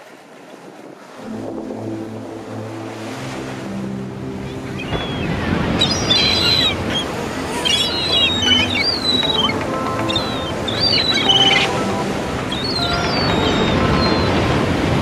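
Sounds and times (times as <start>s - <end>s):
ocean surf washing: 0.0s - 15.0s
high wavering squeaks: 5.8s - 14.4s.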